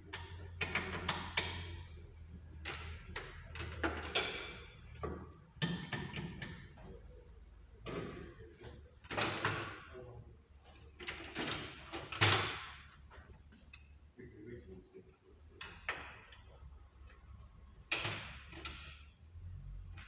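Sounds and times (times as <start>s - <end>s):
metal tools clanking and scraping: 2.6s - 7.0s, 10.6s - 13.9s, 17.8s - 19.2s.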